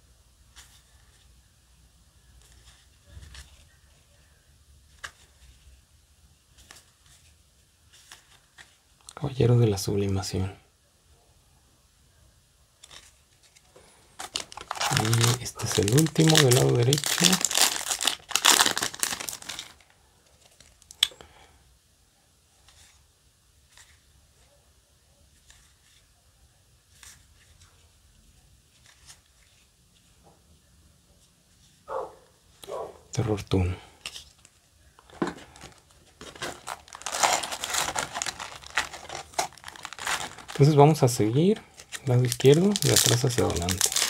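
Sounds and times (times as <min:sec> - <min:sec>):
cards rustling: 0:02.3 - 0:04.1, 0:04.8 - 0:05.8, 0:06.5 - 0:09.1, 0:12.8 - 0:21.0, 0:28.7 - 0:30.2, 0:32.5 - 0:44.0
foil wrapper crinkling: 0:12.8 - 0:21.1, 0:34.0 - 0:44.0.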